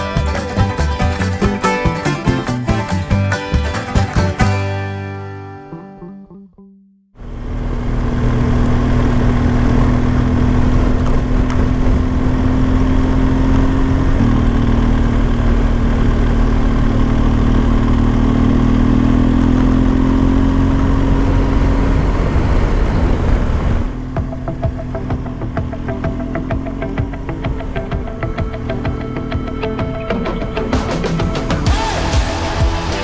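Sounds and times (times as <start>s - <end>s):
motorcycle engine running: 0.0s - 4.5s, 7.2s - 33.0s
wind rush: 21.7s - 24.0s.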